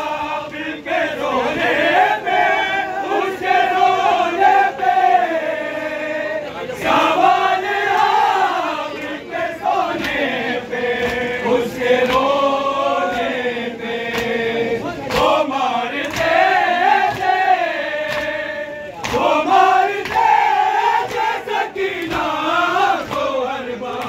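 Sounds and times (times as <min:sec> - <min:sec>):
crowd of men chanting: 0:00.0 - 0:24.0
hands slapping chests: 0:09.9 - 0:11.3, 0:11.9 - 0:12.4, 0:13.0 - 0:13.4, 0:14.0 - 0:24.0.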